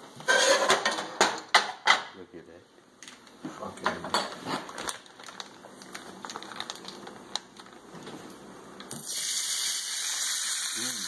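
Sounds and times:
bacon frying on griddle: 8.9s - 11.0s.

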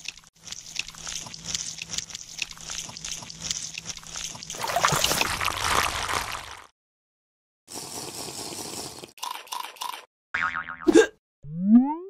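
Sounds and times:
muddy water sloshing: 2.8s - 6.7s.

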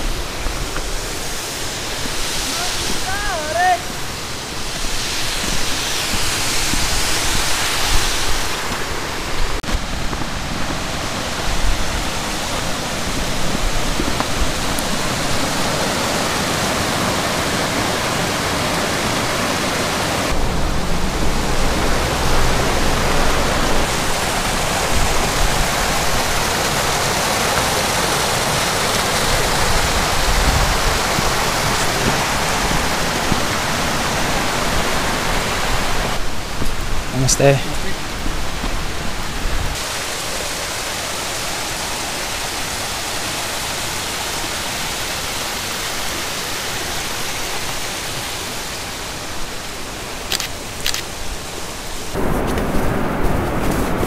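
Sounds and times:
stream and waterfall rushing: 0.0s - 54.0s
low rumble: 20.3s - 25.8s.

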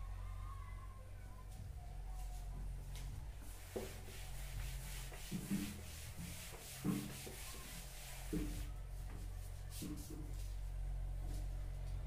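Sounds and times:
eraser rubbing blackboard: 3.5s - 8.7s.

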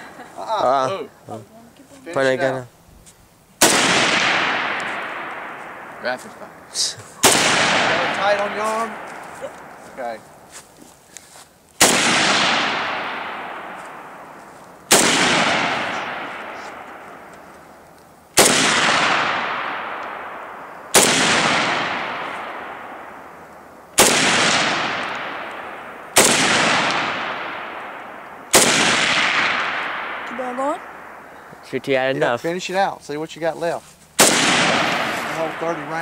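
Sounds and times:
rifle shots echoing: 3.6s - 10.3s, 11.8s - 31.4s, 34.2s - 36.0s.

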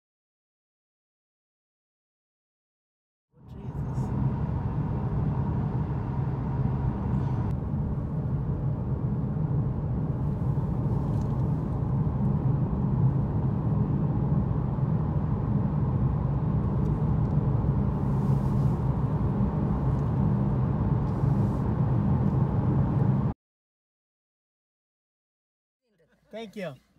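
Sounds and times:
car road and engine noise: 3.4s - 23.4s.

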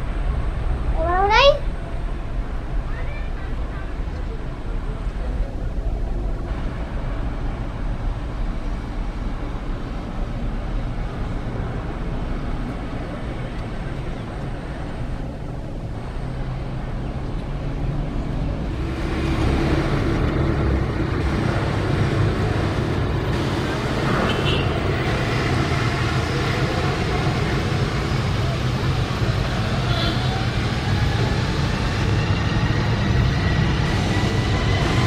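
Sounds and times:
jet engines roaring: 10.5s - 35.0s
jet roar with steady hum: 18.5s - 35.0s.

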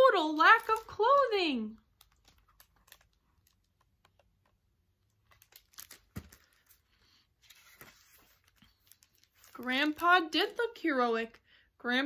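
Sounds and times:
book page rustling: 1.8s - 10.3s.

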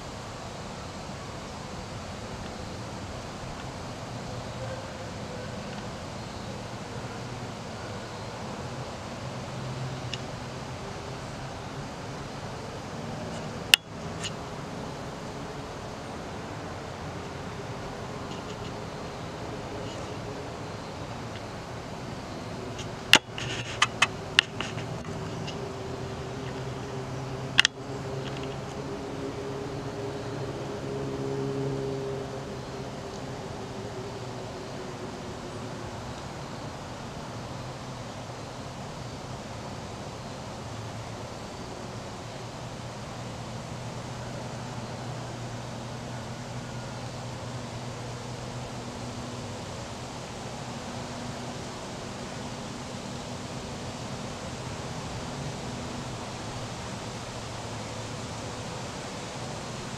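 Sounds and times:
low mechanical hum: 0.0s - 59.9s
steady hiss: 0.0s - 59.9s.

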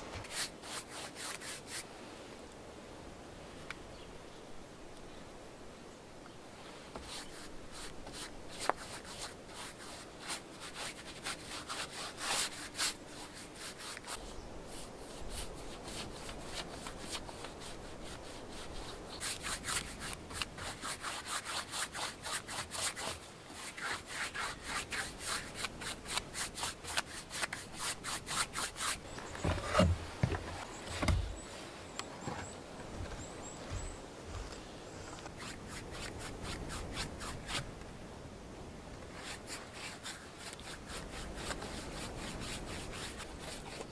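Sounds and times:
paintbrush scrubbing wooden boards: 0.0s - 1.9s, 7.0s - 31.4s, 39.1s - 43.9s.

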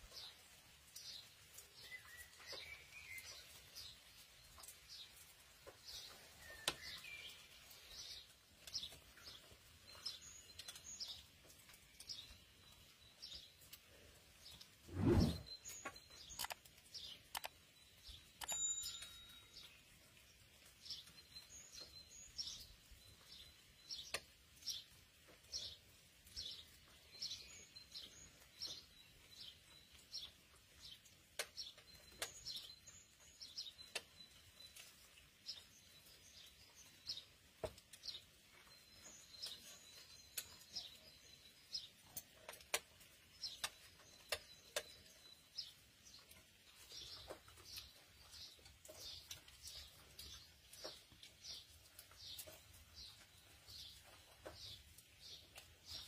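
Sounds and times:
small birds chirping: 0.0s - 56.0s.

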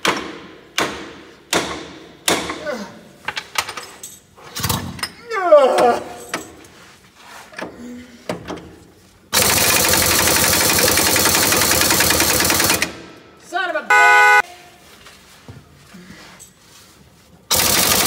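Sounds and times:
impact wrench hammering: 0.0s - 2.6s.

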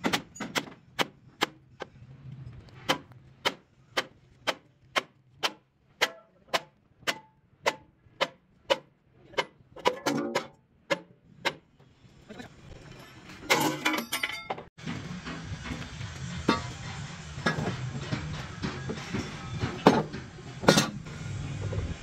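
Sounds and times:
hammer striking steel: 2.9s - 11.6s, 13.6s - 21.1s.

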